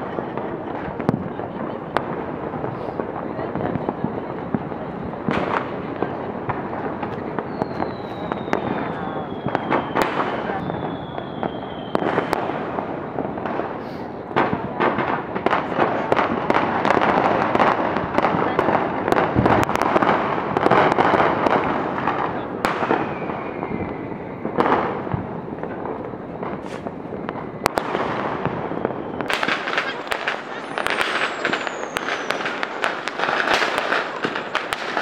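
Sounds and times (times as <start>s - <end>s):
fireworks bangs and crackles: 0.0s - 35.0s
faint falling whistle: 7.5s - 12.2s, 28.7s - 32.7s.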